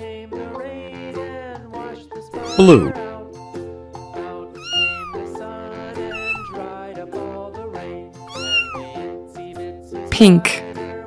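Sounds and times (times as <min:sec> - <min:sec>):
background music: 0:00.0 - 0:11.0
cat meowing: 0:02.4 - 0:03.0, 0:04.6 - 0:05.3, 0:06.1 - 0:06.6, 0:08.3 - 0:09.0.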